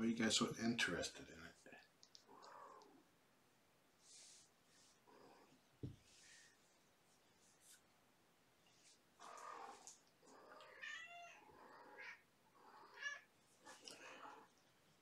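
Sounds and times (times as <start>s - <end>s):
kittens meowing: 9.2s - 14.5s.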